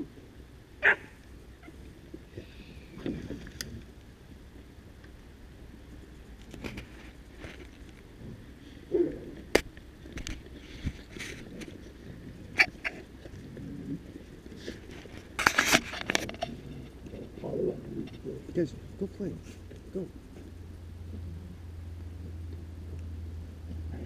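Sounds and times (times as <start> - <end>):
wind rumble: 0.0 - 24.0
camera handling noise: 15.0 - 16.6.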